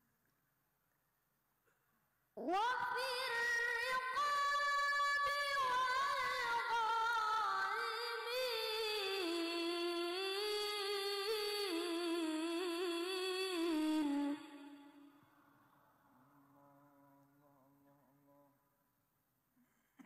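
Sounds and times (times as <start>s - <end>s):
boy chanting into a microphone: 2.4s - 14.8s.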